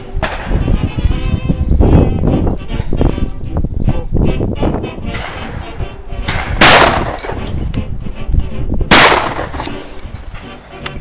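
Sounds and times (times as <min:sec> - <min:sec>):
shotgun shots: 0:00.2 - 0:00.6, 0:05.1 - 0:05.6, 0:06.2 - 0:07.5, 0:08.9 - 0:09.8.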